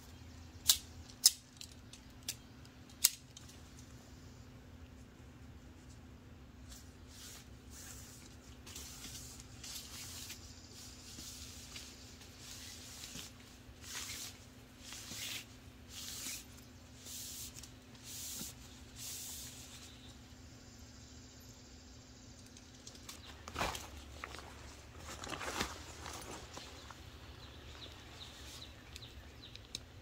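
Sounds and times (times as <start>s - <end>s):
nylon tent fabric rustling: 6.6s - 19.9s, 23.2s - 28.5s.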